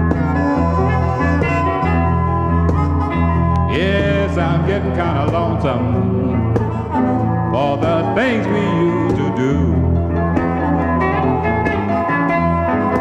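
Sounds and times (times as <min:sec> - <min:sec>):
blues guitar with slide lead: 0:00.0 - 0:13.0
steady bass: 0:00.0 - 0:13.0.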